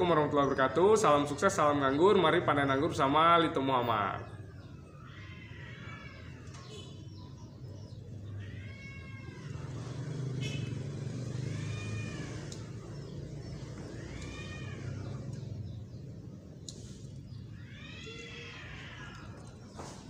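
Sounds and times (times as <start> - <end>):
cat meowing: 4.6 - 16.1, 17.4 - 20.0.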